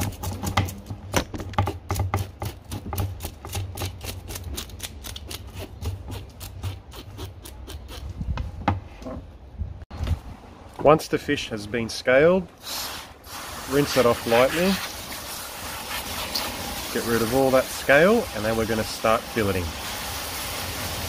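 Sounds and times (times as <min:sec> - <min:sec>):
knife scraping fish scales: 0:02.2 - 0:08.1.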